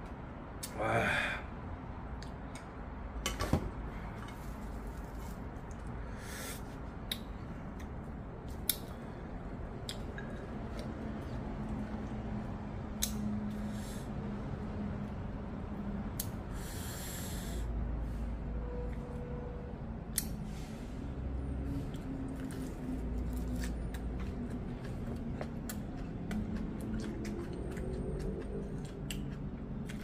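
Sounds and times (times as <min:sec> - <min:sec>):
sharp nasal sniff: 0:06.1 - 0:06.7, 0:16.5 - 0:17.7
person chewing: 0:09.7 - 0:12.4, 0:21.9 - 0:30.0.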